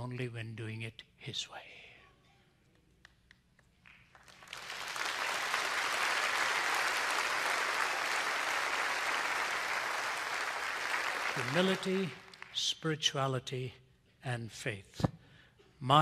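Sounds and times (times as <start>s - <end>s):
large audience applauding: 3.8s - 12.6s.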